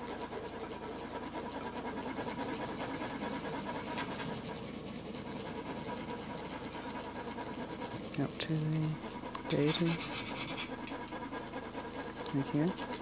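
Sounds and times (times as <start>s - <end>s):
metal funnel scraping: 9.5s - 11.2s.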